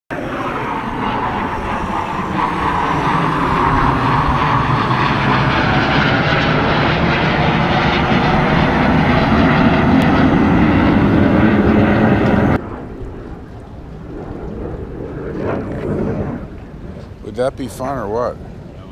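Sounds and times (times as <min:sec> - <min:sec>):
aircraft engine rushing overhead: 0:00.1 - 0:18.9.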